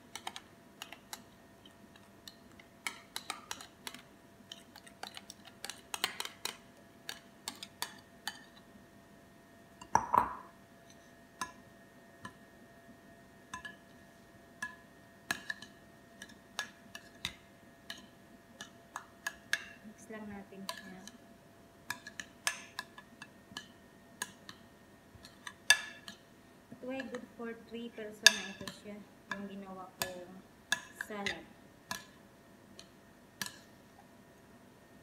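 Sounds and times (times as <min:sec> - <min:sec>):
metal spoon clinking on ceramic bowls: 0:25.2 - 0:26.2, 0:28.2 - 0:32.2.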